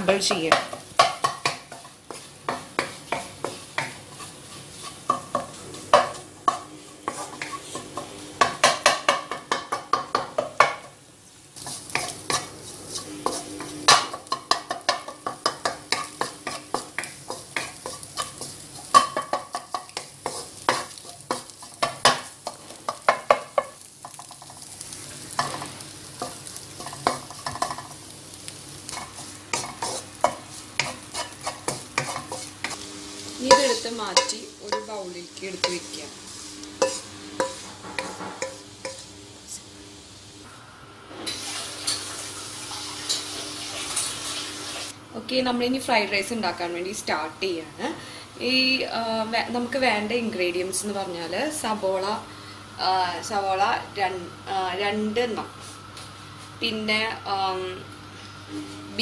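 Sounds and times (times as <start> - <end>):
eggs sizzling in oil: 0.0 - 59.0
wooden spatula scraping a pan: 1.0 - 8.1, 11.6 - 25.7, 28.9 - 32.8, 33.4 - 39.1.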